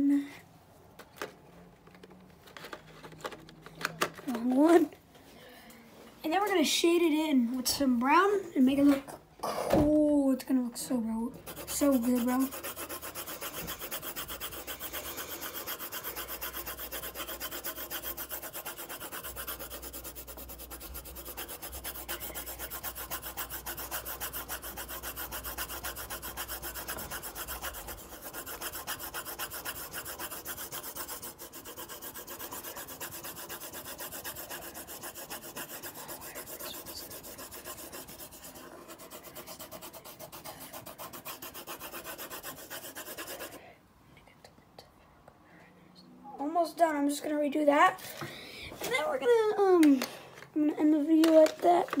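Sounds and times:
pencil shading on paper: 11.3 - 43.6.

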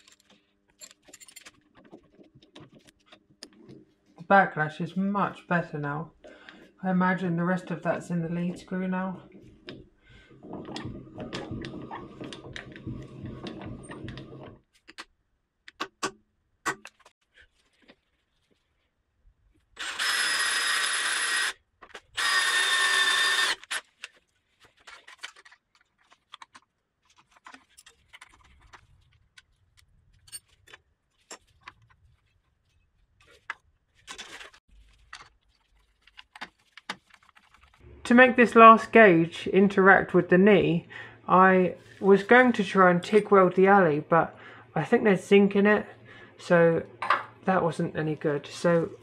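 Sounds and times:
cordless drill drilling into steel: 19.8 - 21.6, 22.2 - 23.8.

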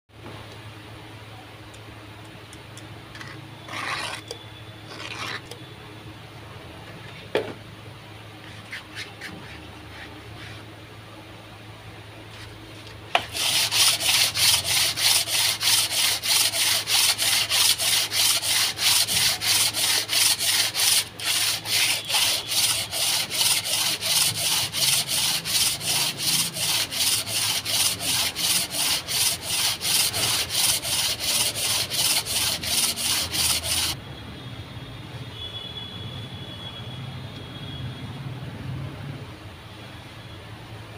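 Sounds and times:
sandpaper scraping metal: 3.2 - 4.3, 4.9 - 5.6, 13.2 - 34.0.

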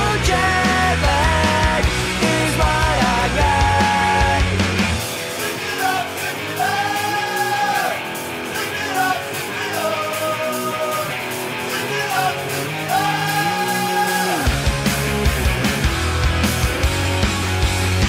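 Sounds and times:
person singing: 0.0 - 4.6, 5.4 - 14.5
bass and drums: 0.0 - 18.0
guitar: 0.0 - 18.0
pop-punk song: 0.0 - 18.0.

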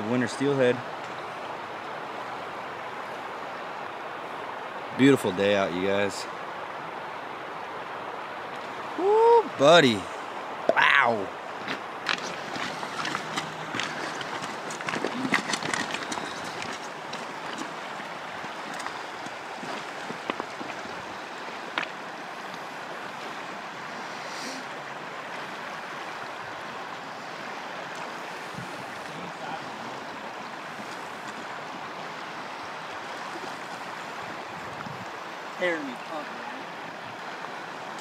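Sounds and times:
river water flowing: 0.0 - 38.0.

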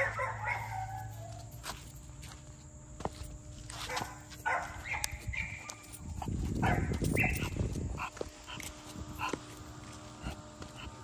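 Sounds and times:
dog breathing and grunting: 6.0 - 11.0.

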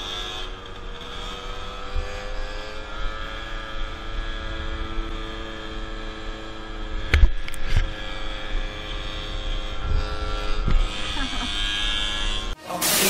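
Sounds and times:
scooter engine droning: 0.0 - 13.0
wind rumble on microphone: 9.7 - 11.0.

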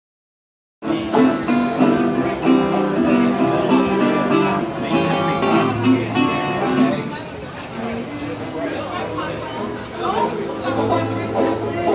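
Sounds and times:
banjos and guitar playing: 0.8 - 7.4, 9.6 - 11.9.

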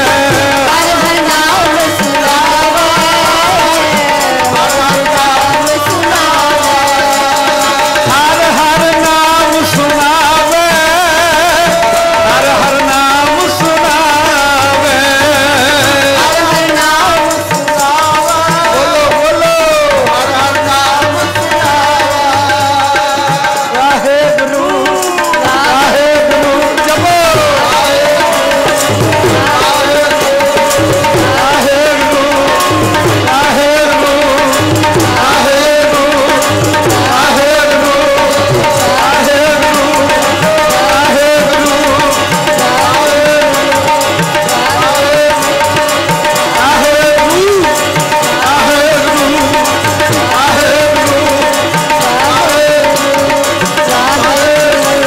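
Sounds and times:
harmonium chords: 0.0 - 55.0
tabla playing: 0.0 - 55.0.

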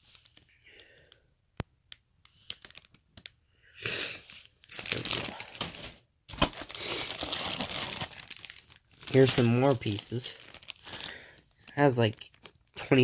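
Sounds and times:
plastic bags crinkling: 2.4 - 3.4, 4.2 - 13.0.

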